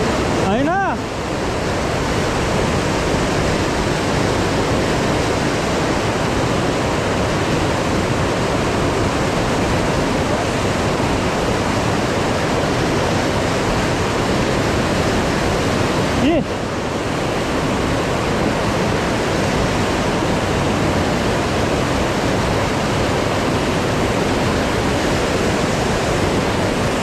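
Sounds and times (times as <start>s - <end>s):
whitewater river rushing: 0.0s - 27.0s.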